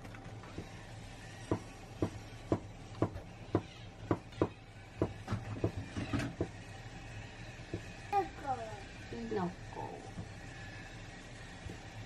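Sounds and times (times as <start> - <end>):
knife chopping on wooden board: 1.4 - 6.6.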